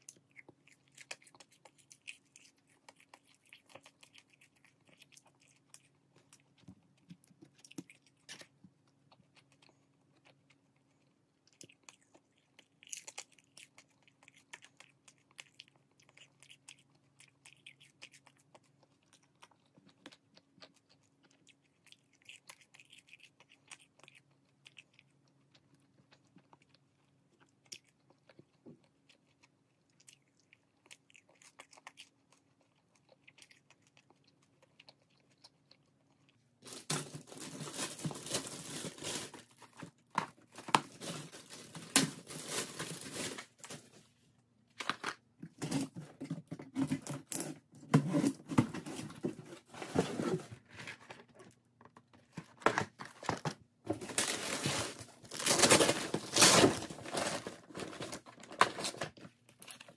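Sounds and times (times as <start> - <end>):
faint chewing: 0.0 - 36.7
plastic bags rustling: 36.6 - 39.7, 40.6 - 44.1, 53.9 - 59.1.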